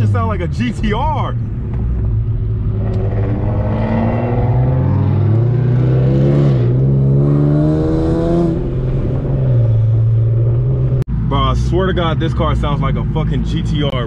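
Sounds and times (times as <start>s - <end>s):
car engine accelerating: 0.0s - 11.1s.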